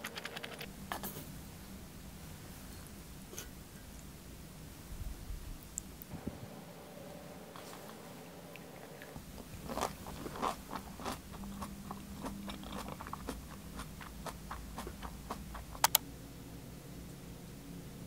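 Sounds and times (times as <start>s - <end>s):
crunchy chewing: 7.5s - 16.0s
sharp clicks: 15.7s - 16.0s.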